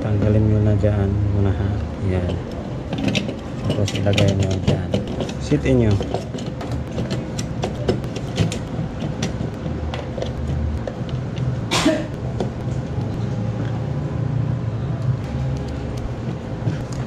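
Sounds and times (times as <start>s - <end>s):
steady low rumble: 0.0s - 17.0s
plastic parts clicking and tapping: 2.2s - 11.5s.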